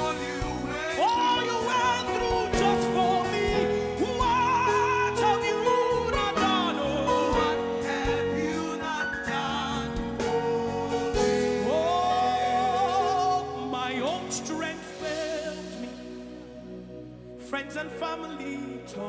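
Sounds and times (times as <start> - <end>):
band playing: 0.0 - 18.0.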